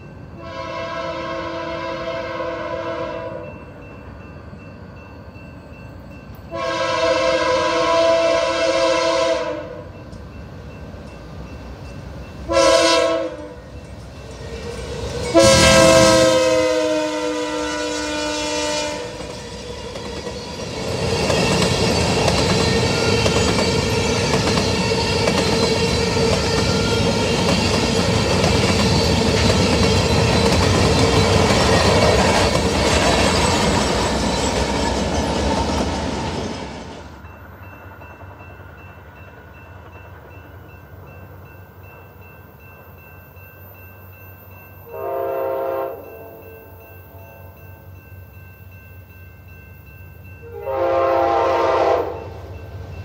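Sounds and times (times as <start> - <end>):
locomotive passing: 0.0 - 53.0
train horn chord: 0.4 - 3.6, 6.5 - 10.0, 12.5 - 13.7, 15.3 - 19.3, 44.8 - 47.5, 50.4 - 52.6.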